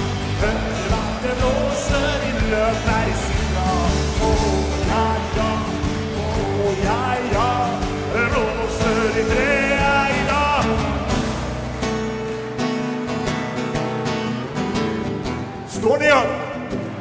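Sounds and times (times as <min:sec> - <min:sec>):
man singing: 0:00.0 - 0:11.4
bass notes: 0:00.0 - 0:15.7
rock band playing: 0:00.0 - 0:15.7
acoustic guitar: 0:00.0 - 0:17.0.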